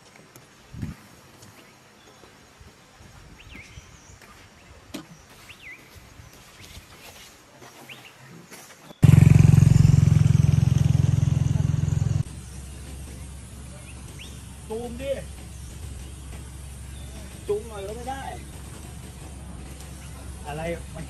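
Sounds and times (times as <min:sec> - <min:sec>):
loud low rumble: 0:09.0 - 0:21.0.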